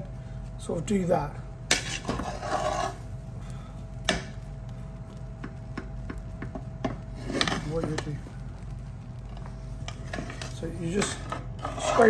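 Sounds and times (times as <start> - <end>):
steady low hum: 0.0 - 12.0
metal ladle scraping a pot: 1.7 - 3.0, 9.9 - 12.0.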